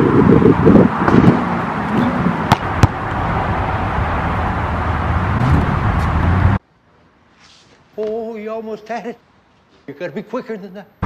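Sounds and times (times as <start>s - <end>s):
steady outdoor rumble: 0.0s - 7.3s.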